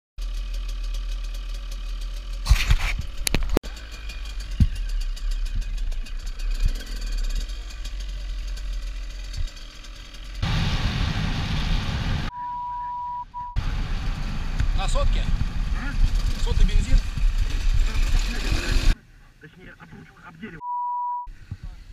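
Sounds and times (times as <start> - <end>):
dirt bike engines running: 0.2 - 12.3, 13.6 - 19.0
high-pitched beep: 12.3 - 13.6, 20.6 - 21.3.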